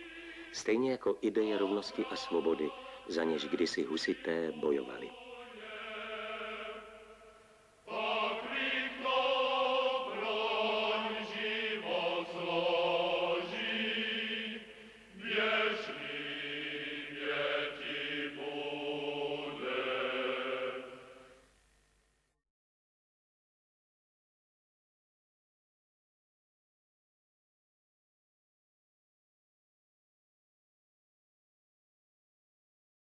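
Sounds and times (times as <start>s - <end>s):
choir singing a slow chant: 0.0s - 21.4s.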